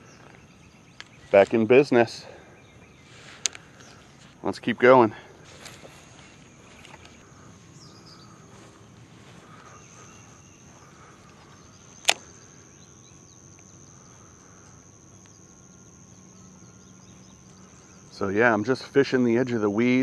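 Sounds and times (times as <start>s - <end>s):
high-pitched insect drone: 0.0s - 20.0s
sharp click: 12.0s - 12.3s.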